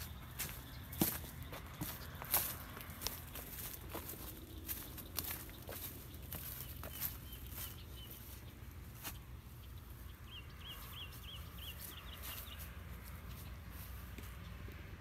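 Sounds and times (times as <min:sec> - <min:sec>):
footsteps: 0:00.0 - 0:09.2
bird chirping: 0:00.0 - 0:14.6.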